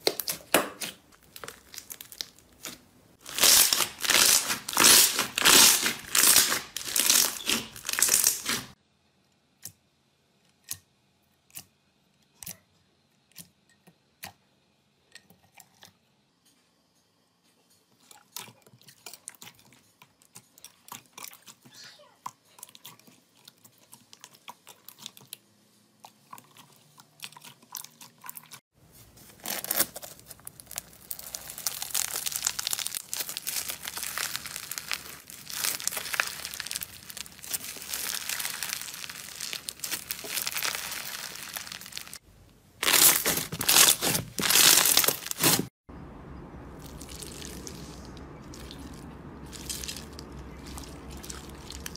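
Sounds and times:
foam-bead slime crunching: 0:00.0 - 0:08.8, 0:29.0 - 0:42.2, 0:42.8 - 0:45.7, 0:46.8 - 0:51.9.

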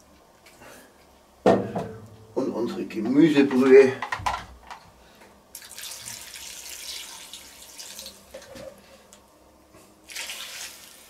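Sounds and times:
liquid pouring and splashing: 0:05.6 - 0:08.4, 0:10.0 - 0:11.0.

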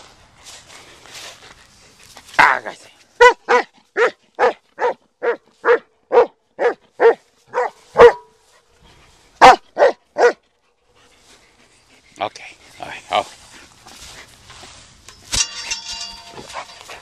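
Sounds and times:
dog barking: 0:03.2 - 0:08.4, 0:09.4 - 0:10.4.

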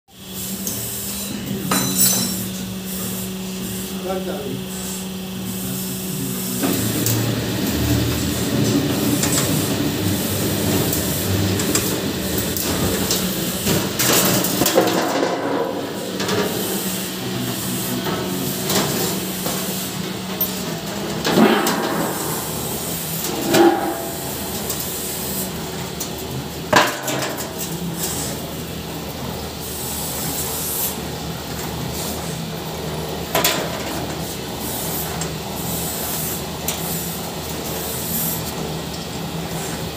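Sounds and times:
steel scraping on steel: 0:21.6 - 0:24.8.

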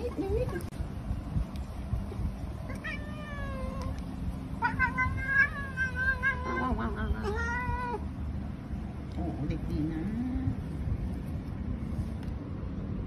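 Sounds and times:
cat meowing: 0:02.7 - 0:04.0, 0:04.6 - 0:08.1.

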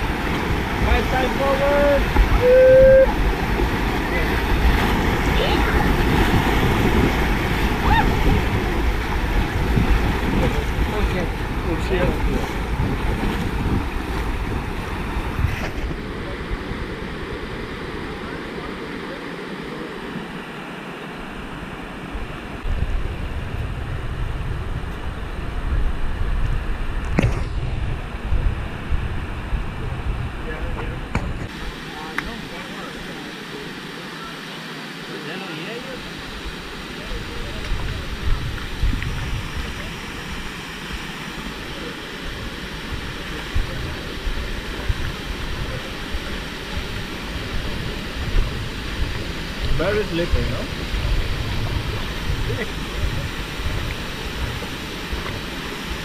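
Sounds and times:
river rapids rushing: 0:00.0 - 0:22.6
waterfall rushing: 0:00.0 - 0:22.7, 0:31.5 - 0:56.0
low rumbling microphone noise: 0:00.0 - 0:35.0, 0:35.9 - 0:56.0.

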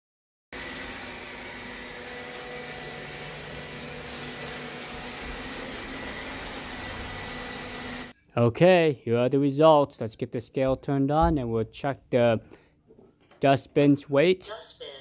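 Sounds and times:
robot vacuum whirring: 0:00.6 - 0:08.1.

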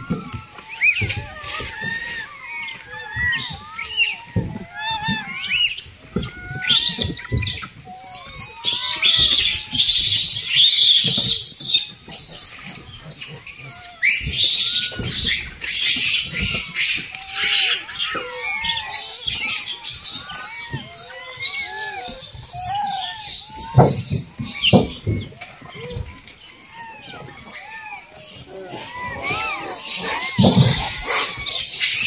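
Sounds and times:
monkeys squealing chirps: 0:00.0 - 0:32.0
rustling: 0:00.0 - 0:32.0.

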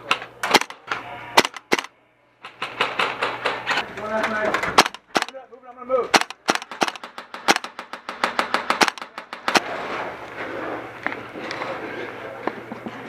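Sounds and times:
airsoft guns firing: 0:00.0 - 0:05.4, 0:06.1 - 0:09.9.

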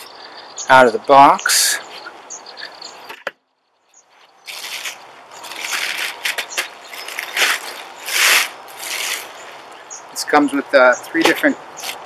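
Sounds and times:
plastic bag crinkling: 0:04.5 - 0:09.3.

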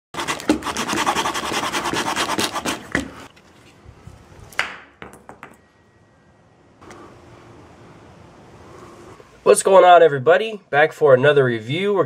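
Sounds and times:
saw rasping through wood: 0:00.2 - 0:03.3.

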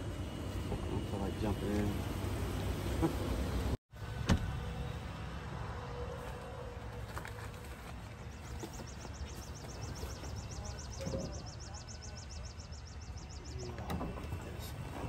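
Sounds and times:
distant traffic hum: 0:00.0 - 0:15.0.

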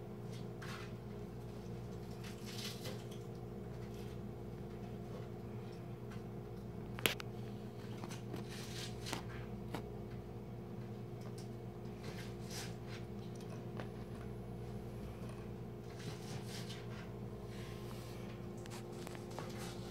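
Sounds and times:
steady background hum: 0:00.0 - 0:19.9
cat paws scratching and tapping: 0:15.8 - 0:17.2, 0:18.6 - 0:19.9.

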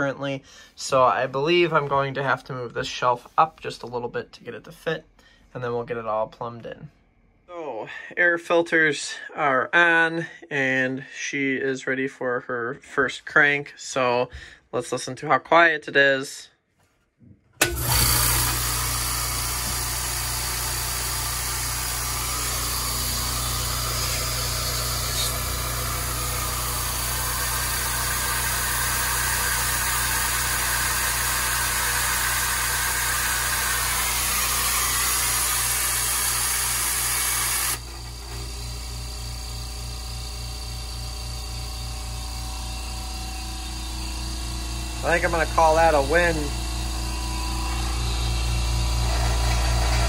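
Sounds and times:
air compressor running: 0:17.6 - 0:50.0.

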